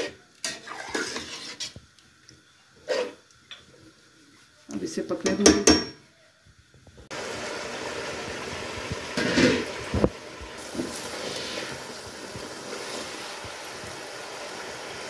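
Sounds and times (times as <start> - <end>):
gravy bubbling in a pot: 0.0 - 4.4, 6.6 - 15.0
spoon knocking against a pot: 5.2 - 6.0.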